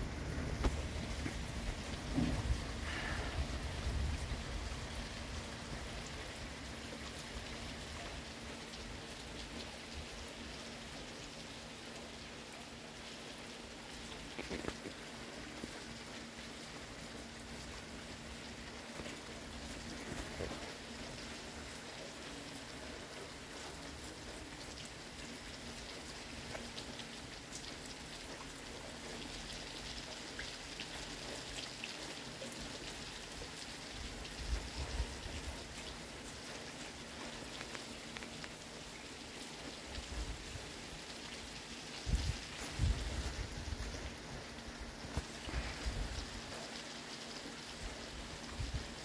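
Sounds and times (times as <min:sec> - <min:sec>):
steady rain falling: 0:00.0 - 0:49.0
drip ticks: 0:37.2 - 0:38.6.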